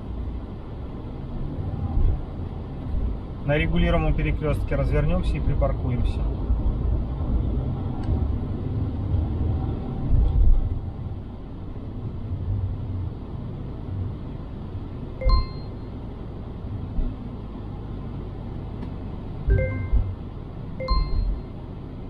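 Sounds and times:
car engine and road rumble: 0:00.0 - 0:22.0
short ding: 0:15.2 - 0:15.8.

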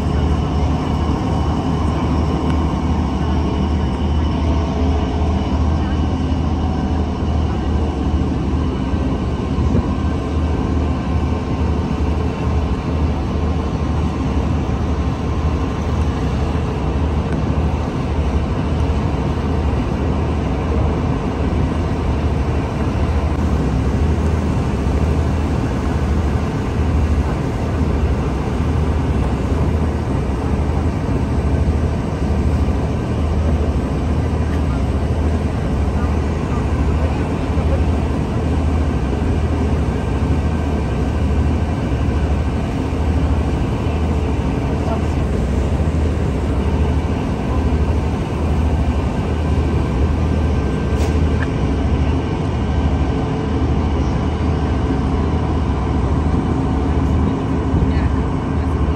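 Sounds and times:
low engine drone: 0:00.0 - 0:58.9
noisy rush: 0:00.0 - 0:58.9.

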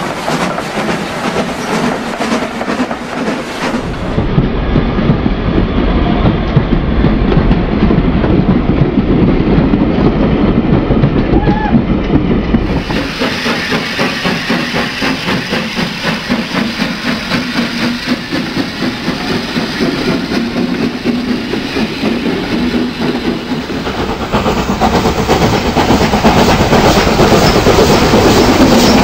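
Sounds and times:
model train wheels clicking on rails: 0:12.6 - 0:29.0.

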